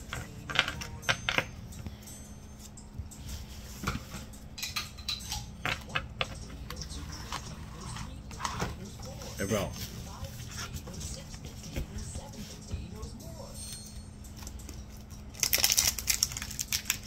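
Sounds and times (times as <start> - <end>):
cards and foil wrapper crinkling: 14.3 - 17.0.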